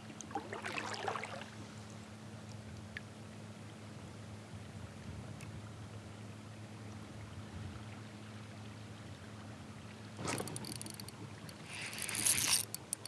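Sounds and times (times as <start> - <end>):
faint water lapping: 0.0 - 13.0
low steady hum: 0.0 - 13.0
fishing reel rattle: 10.3 - 13.0.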